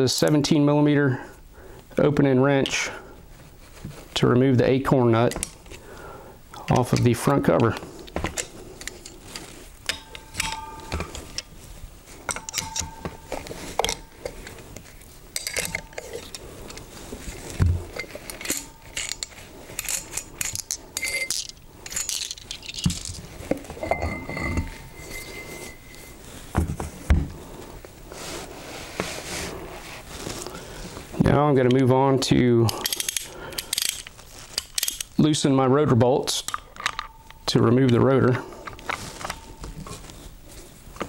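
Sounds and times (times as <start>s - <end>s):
wrench clinking on metal nuts: 9.9s - 11.5s, 12.2s - 14.3s, 15.4s - 16.4s, 18.0s - 23.2s, 23.8s - 26.0s, 32.7s - 35.2s.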